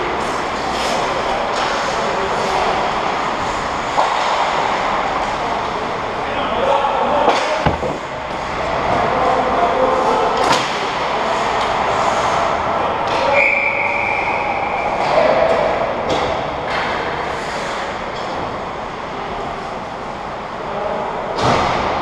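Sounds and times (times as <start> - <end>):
sticks and puck clacking: 7.2 - 8.2
sharp knocks: 7.4 - 8.2.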